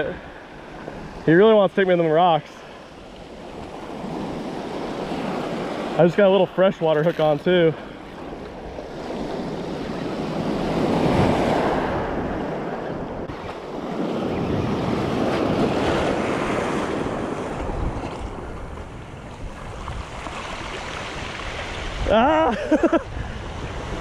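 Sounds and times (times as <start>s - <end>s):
wind on microphone: 8.1s - 24.0s
waves breaking on pebbly shore: 14.9s - 22.8s.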